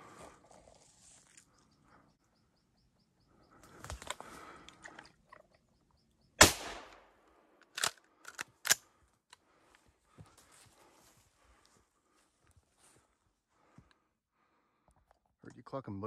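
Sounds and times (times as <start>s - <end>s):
rustling brush and twigs: 0.0s - 2.2s, 3.1s - 4.9s, 8.8s - 13.7s
loud shotgun shot: 6.4s - 7.1s.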